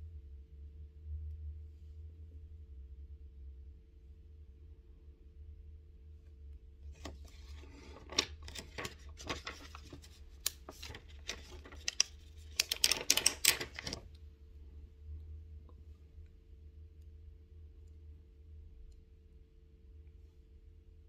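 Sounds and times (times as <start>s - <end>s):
low steady hum: 0.0s - 21.0s
plastic sticker sheet crinkling: 7.0s - 14.1s
stickers peeling clicks: 8.1s - 14.0s.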